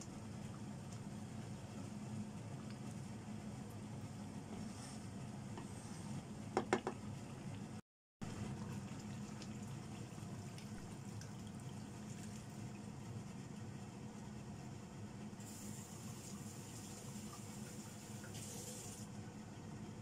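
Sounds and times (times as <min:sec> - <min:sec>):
wooden spatula tapping pan: 0:06.6 - 0:07.0
hot water pouring: 0:08.4 - 0:12.8, 0:15.4 - 0:19.1.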